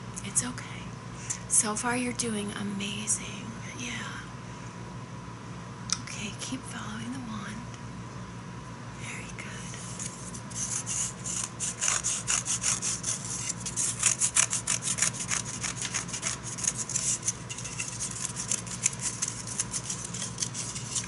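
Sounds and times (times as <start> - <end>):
scratchy rasping strokes: 9.7 - 21.0.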